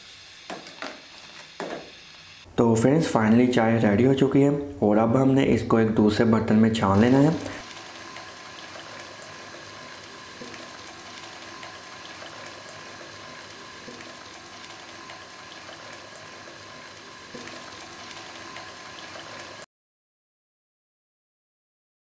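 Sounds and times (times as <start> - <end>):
liquid trickling into pan: 7.2 - 19.6.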